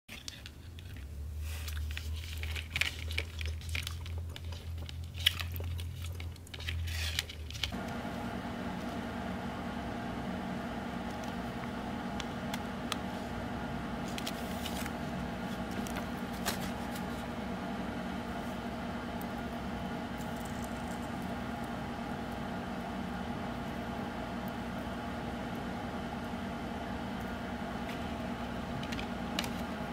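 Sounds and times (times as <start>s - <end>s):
clicks and crinkles of handling: 0.1s - 8.0s, 14.0s - 17.3s, 27.2s - 29.7s
steady hum: 7.7s - 29.9s.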